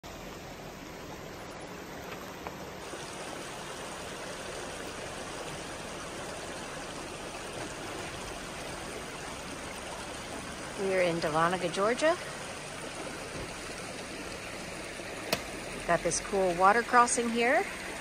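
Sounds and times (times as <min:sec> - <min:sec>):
creek flowing: 0:00.0 - 0:18.0.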